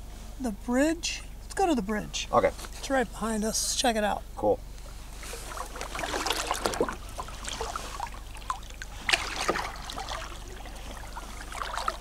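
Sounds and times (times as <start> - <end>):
kayak paddle strokes splashing: 5.1 - 12.0
water dripping from paddle: 5.4 - 12.0.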